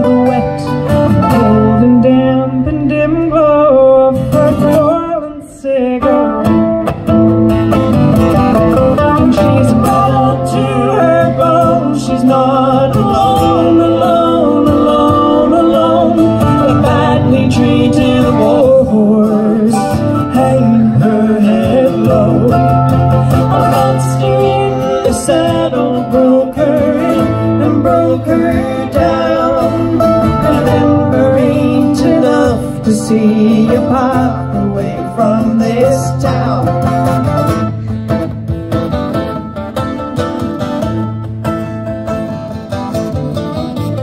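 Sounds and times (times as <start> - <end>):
woman singing: 0.0 - 6.4, 9.2 - 22.8, 23.4 - 36.8
acoustic guitar and mandolin: 0.0 - 44.0.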